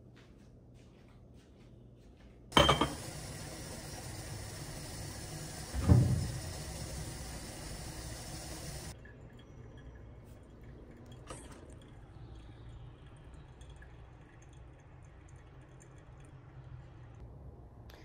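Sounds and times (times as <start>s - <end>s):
ceramic knocking on stone countertop: 2.5s - 3.1s
gas burner hiss: 2.6s - 9.0s.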